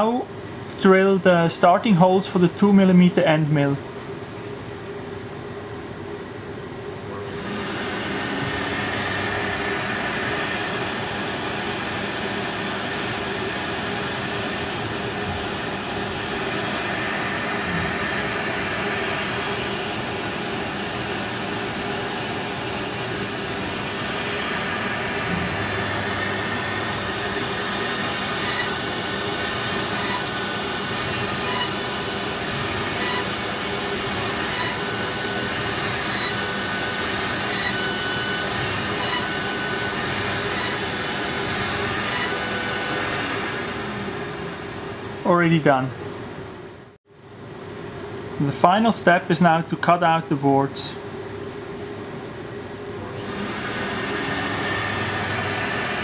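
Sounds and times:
milling machine rushing noise: 7.3s - 45.3s.

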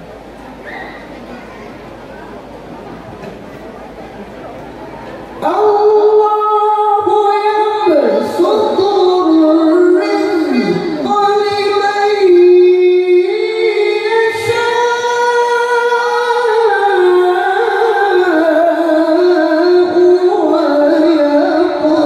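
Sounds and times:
man reciting over loudspeaker: 5.4s - 22.0s.

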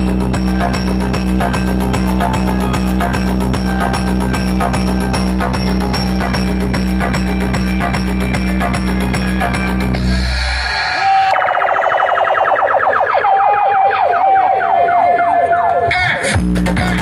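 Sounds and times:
bass-heavy drum beat: 0.0s - 10.6s, 16.2s - 17.0s
siren-like electronic build-up: 8.8s - 16.2s.

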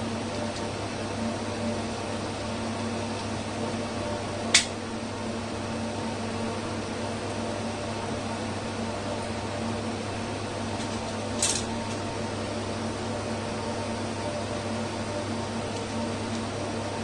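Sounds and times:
cooling fans humming: 0.0s - 17.0s.

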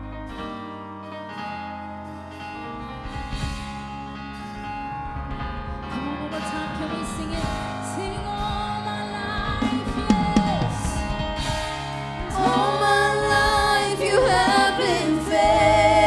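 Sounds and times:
people singing a gospel song: 8.0s - 16.0s.

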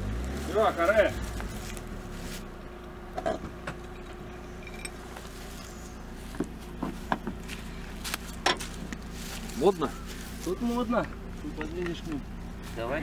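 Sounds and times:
low steady hum: 1.1s - 13.0s.

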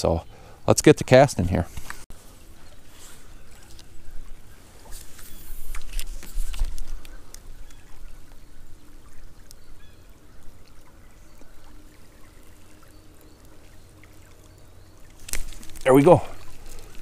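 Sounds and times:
creek trickling: 0.0s - 17.0s
faint ticks: 9.4s - 9.7s.

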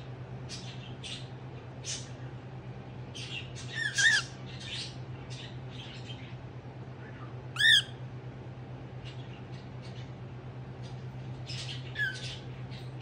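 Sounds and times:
soft scratchy bird chatter: 0.3s - 8.0s, 8.8s - 13.0s
cockatiel squawks: 3.7s - 4.4s, 7.6s - 8.0s.

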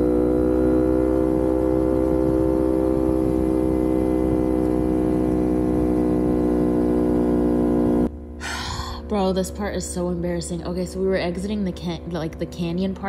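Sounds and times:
wind rumble on microphone: 0.0s - 7.5s
motorcycle engine cruising: 0.0s - 13.0s.

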